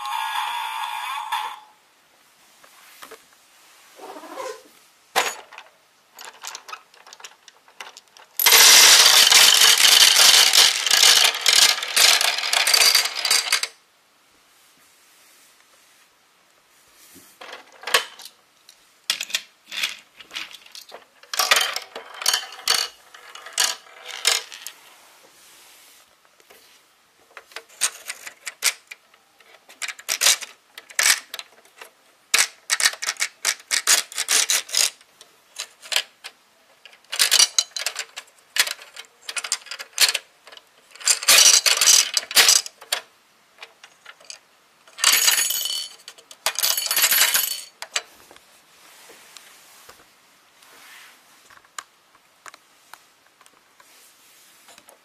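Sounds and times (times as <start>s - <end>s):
small hard objects clinking: 6.2s - 13.7s, 43.9s - 47.8s.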